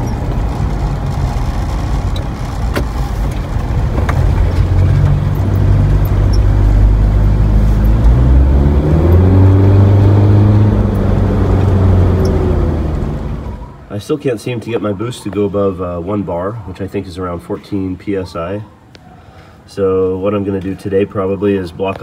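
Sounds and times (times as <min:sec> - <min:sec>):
diesel engine heard from cab: 0:00.0 - 0:14.1.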